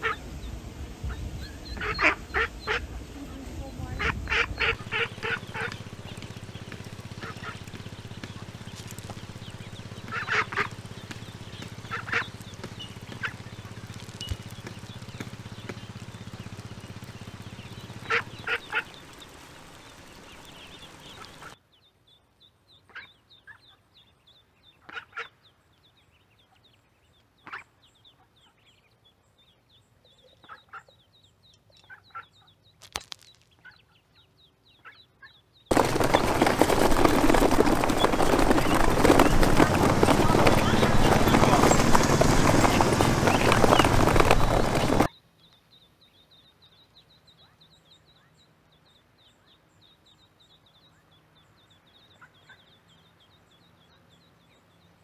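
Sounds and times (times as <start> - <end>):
ducks quacking: 0.0 - 0.2, 1.1 - 19.3, 24.8 - 25.4, 34.8 - 45.1
steady low hum: 0.0 - 21.5
crowded pen of ducklings calling: 0.0 - 32.8, 33.5 - 55.0.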